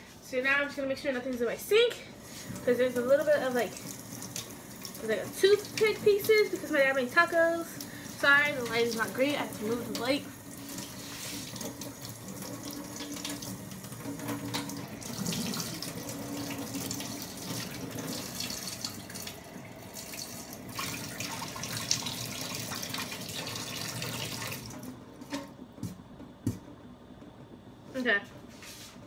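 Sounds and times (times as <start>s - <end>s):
tap water splashing into sink: 7.7s - 25.5s.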